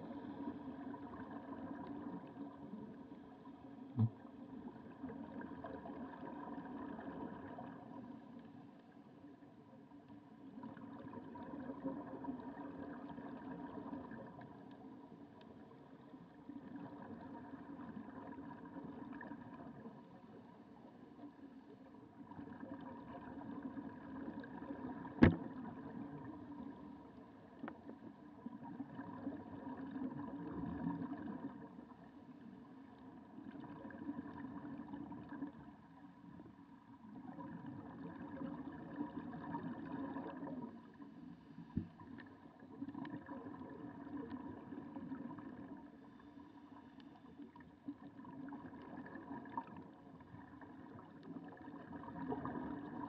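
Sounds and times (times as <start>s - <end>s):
muffled underwater noise: 0.0s - 8.5s.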